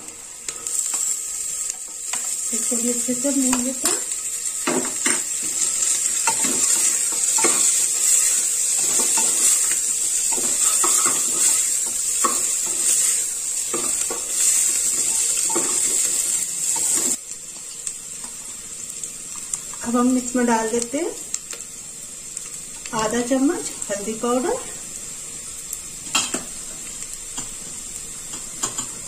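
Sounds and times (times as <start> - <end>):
food sizzling in a pot: 0.0 - 29.0
wooden spatula scraping a pot: 5.0 - 16.1.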